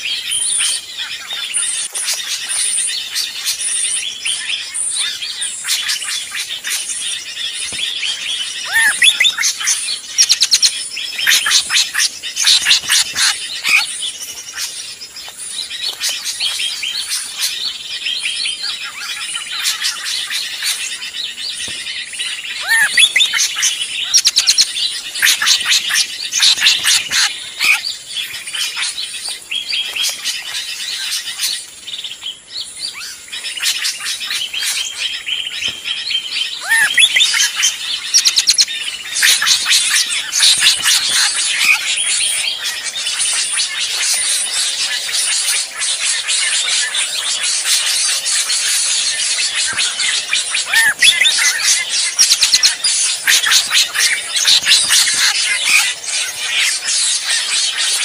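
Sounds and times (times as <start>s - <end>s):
bird chirps and whistles: 2.1s - 14.8s, 15.8s - 27.9s, 32.9s - 58.0s
downward-sliding bird whistle: 8.6s - 13.0s, 22.6s - 24.6s.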